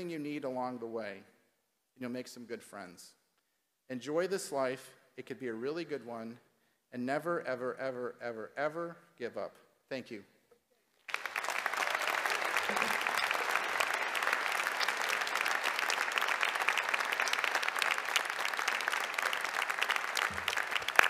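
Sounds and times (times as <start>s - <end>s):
large audience applauding: 11.0s - 21.0s.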